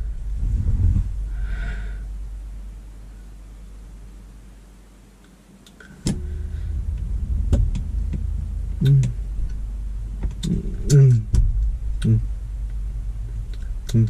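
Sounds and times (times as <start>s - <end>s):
low car rumble: 0.0s - 4.9s, 5.7s - 14.0s.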